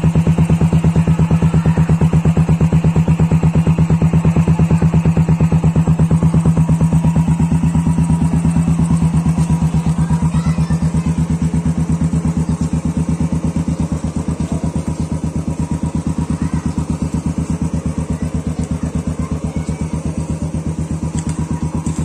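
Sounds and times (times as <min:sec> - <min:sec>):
motorcycle engine idling: 0:00.0 - 0:22.0.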